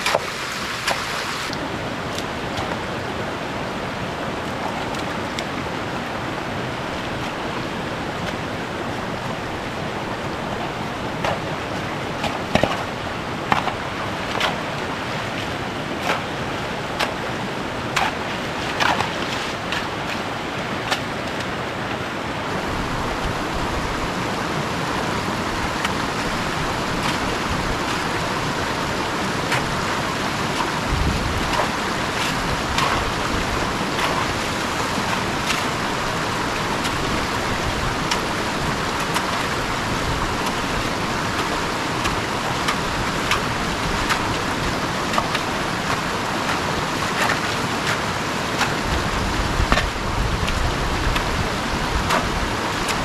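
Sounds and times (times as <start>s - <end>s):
stream rushing over rocks: 0.0s - 53.0s
wind gusts on microphone: 22.5s - 45.0s.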